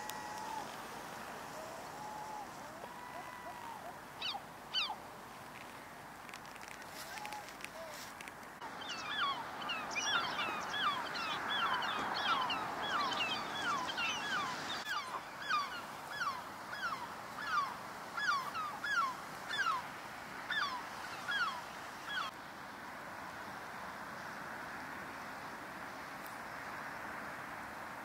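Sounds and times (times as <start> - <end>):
birds piping calls: 2.0 - 5.0.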